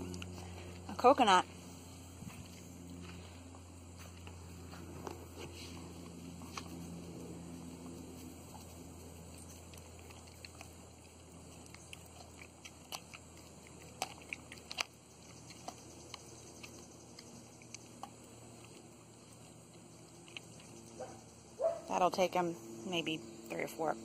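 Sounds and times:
dog chewing coconut: 0.0 - 22.0.

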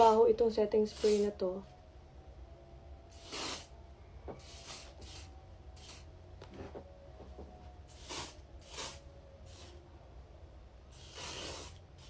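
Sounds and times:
aerosol spray hissing: 0.9 - 1.3, 3.1 - 3.7, 4.4 - 6.1, 7.9 - 9.8, 10.9 - 12.0.

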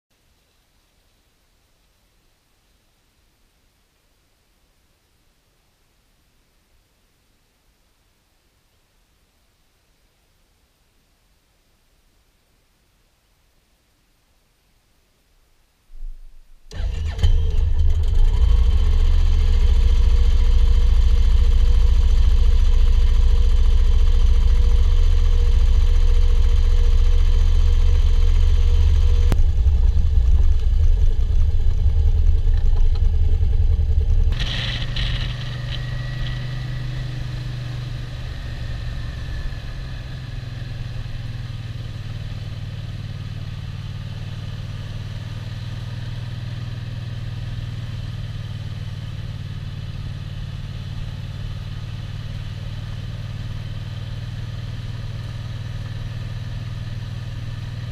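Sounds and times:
motorcycle engine cruising: 16.7 - 57.9
motorcycle engine starting and idling: 16.7 - 57.9.

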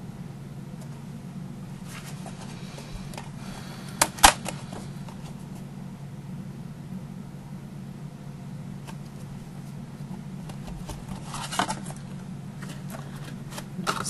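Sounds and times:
steady low hum: 0.0 - 14.0
paper and card rustling: 1.8 - 3.3, 10.4 - 14.0.

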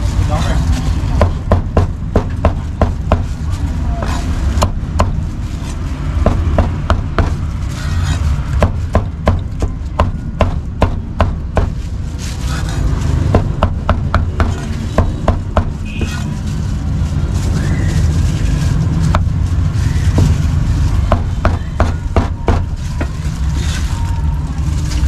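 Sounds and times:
low background rumble: 0.0 - 25.0.

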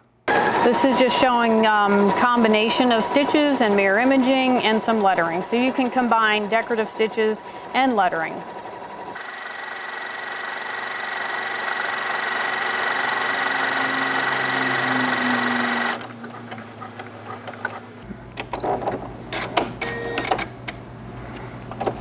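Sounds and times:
sewing machine stitching: 0.3 - 17.9.

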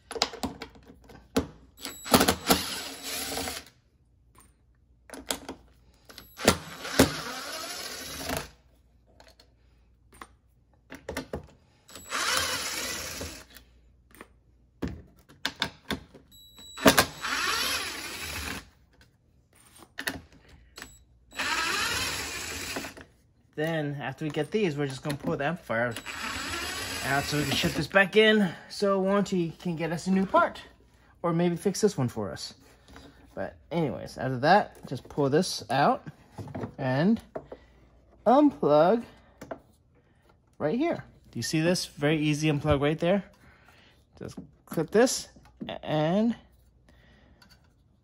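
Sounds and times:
cordless drill unscrewing screws: 6.1 - 8.5, 11.9 - 13.6, 25.9 - 27.8.

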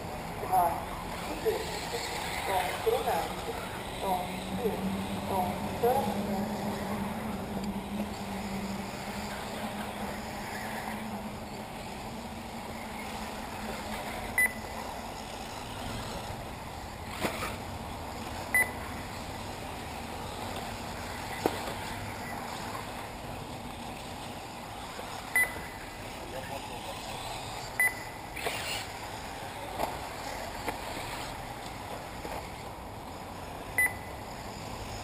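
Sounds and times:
open-air background noise: 0.0 - 35.0
short high electronic beeps: 14.4 - 14.6, 18.6 - 18.8, 25.4 - 25.6, 27.8 - 28.2, 33.8 - 34.2.

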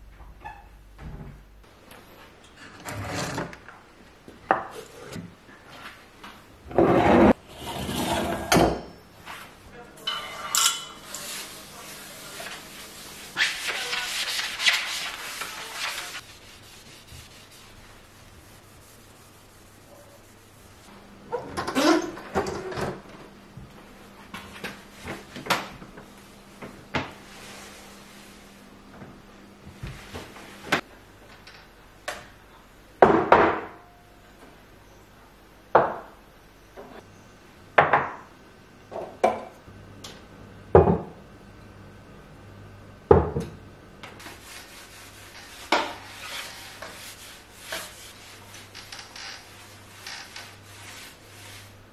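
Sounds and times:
sponge scrubbing tiles: 10.8 - 20.9, 44.2 - 51.8.

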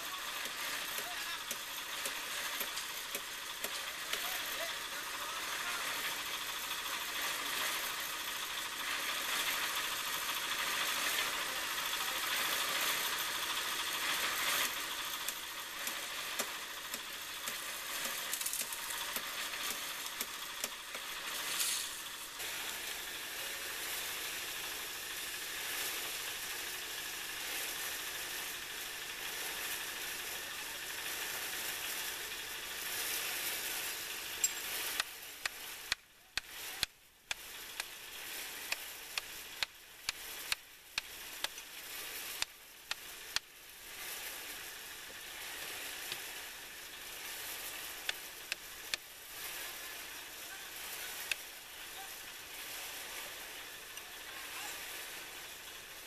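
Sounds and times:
concrete mixer churning: 0.0 - 56.0.

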